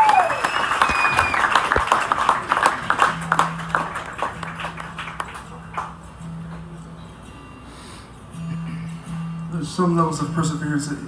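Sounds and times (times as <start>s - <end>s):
audience applause: 0.0s - 6.0s.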